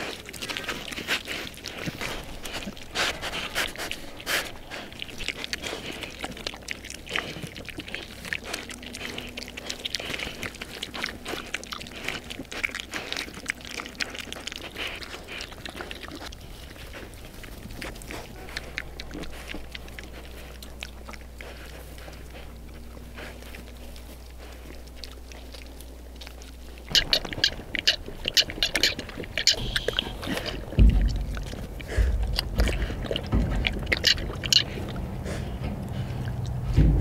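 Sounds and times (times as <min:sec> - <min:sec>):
pigs chewing and crunching: 0:00.0 - 0:37.0
rooting through straw: 0:00.0 - 0:37.0.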